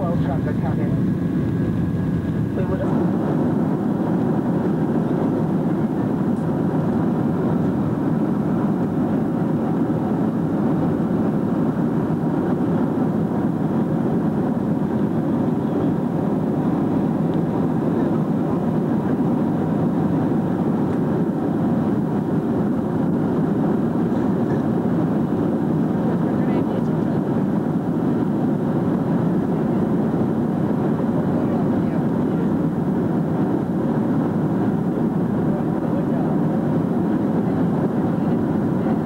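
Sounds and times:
airplane cabin noise: 0:00.0 - 0:39.0.

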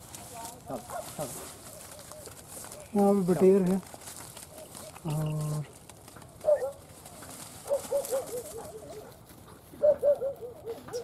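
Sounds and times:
dog yelping: 0:06.4 - 0:06.8, 0:07.6 - 0:09.1, 0:09.8 - 0:11.0.

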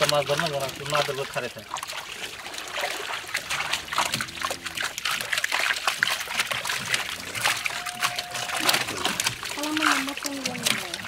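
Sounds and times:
fish flapping and splashing: 0:00.0 - 0:11.0
water dribbling: 0:00.0 - 0:11.0.

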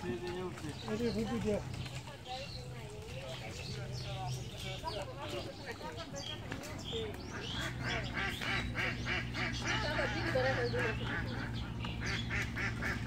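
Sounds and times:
waterfowl calling: 0:06.1 - 0:13.0.

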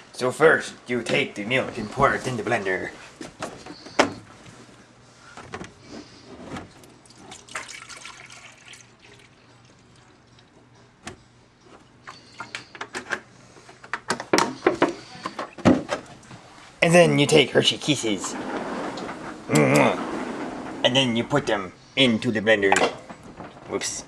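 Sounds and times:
milk pouring into blender jar: 0:07.3 - 0:10.4.

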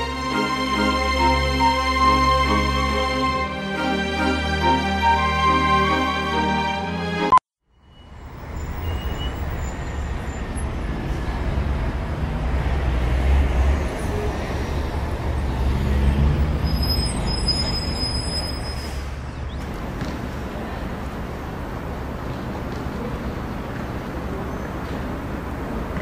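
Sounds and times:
music: 0:00.0 - 0:07.4
distant city traffic rumble: 0:07.7 - 0:26.0.

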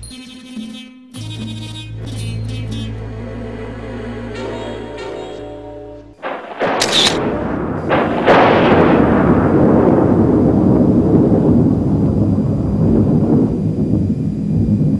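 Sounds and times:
loud steady rumble: 0:02.0 - 0:14.9
sharp cracks: 0:06.2 - 0:11.5.

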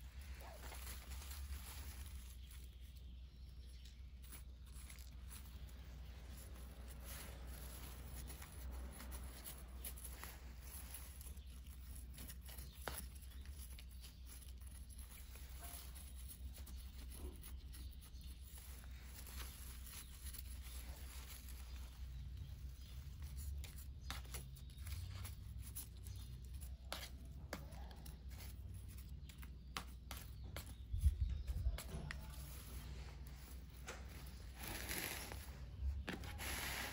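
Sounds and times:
fingers rustling potting soil: 0:00.0 - 0:36.9
plant leaves brushed: 0:00.0 - 0:36.9.

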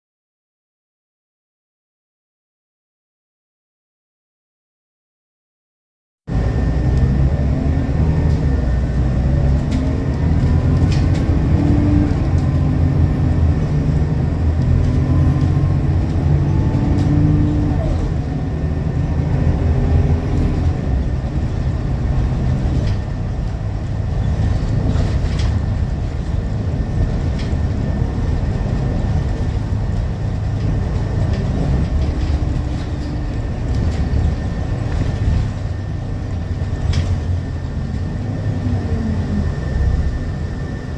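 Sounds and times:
bus diesel engine accelerating: 0:06.3 - 0:40.9
bus body clicks and rattles: 0:09.4 - 0:18.2, 0:20.3 - 0:38.3.

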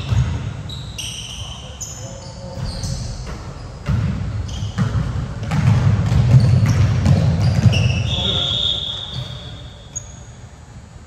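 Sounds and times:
basketball bouncing on floor: 0:00.0 - 0:00.5, 0:02.5 - 0:08.4
shoe squeaks: 0:00.0 - 0:05.0, 0:06.3 - 0:10.4.

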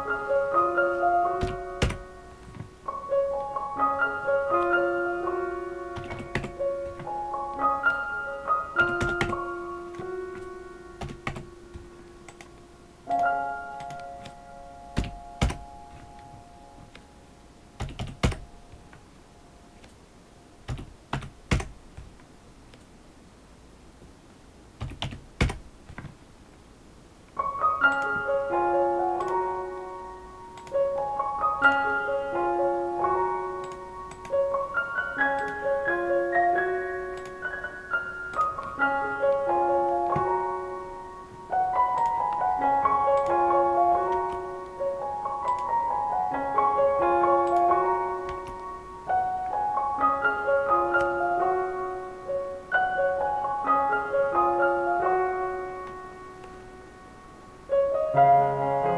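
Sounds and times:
background music: 0:00.0 - 0:19.9, 0:27.4 - 0:58.9
computer keyboard keystrokes: 0:06.0 - 0:07.1, 0:08.8 - 0:12.5, 0:15.0 - 0:16.3, 0:17.8 - 0:18.4, 0:20.7 - 0:22.1, 0:24.8 - 0:26.1, 0:45.4 - 0:45.7, 0:48.3 - 0:48.6.

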